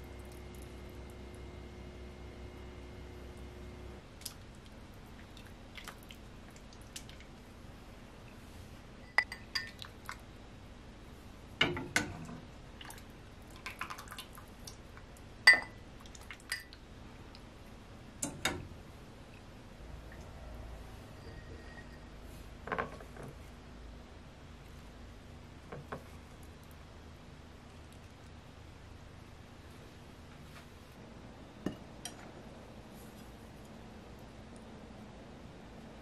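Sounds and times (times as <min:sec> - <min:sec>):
broth pouring and dripping: 0:12.8 - 0:15.3.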